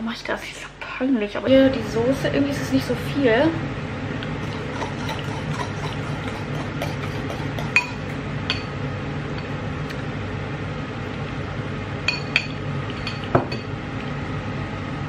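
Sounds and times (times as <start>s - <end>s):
steady low hum: 0.0s - 15.0s
spoon clinking in ceramic bowl: 5.1s - 8.7s.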